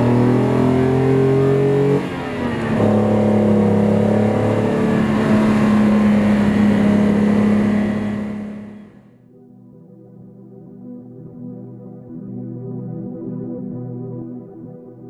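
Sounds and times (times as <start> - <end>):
car engine accelerating: 0.0 - 9.1.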